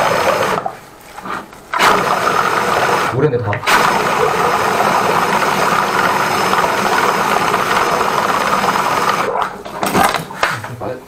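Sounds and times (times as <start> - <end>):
drain cleaning machine motor: 0.0 - 0.7, 1.7 - 9.4.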